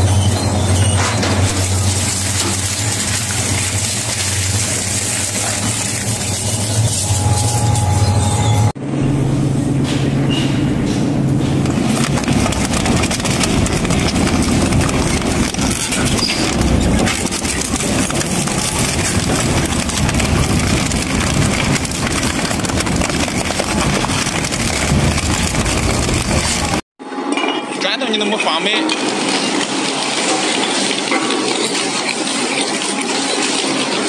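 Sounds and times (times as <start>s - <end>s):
low machine hum: 0.0s - 26.8s
shredder cracking and crunching: 11.7s - 26.8s.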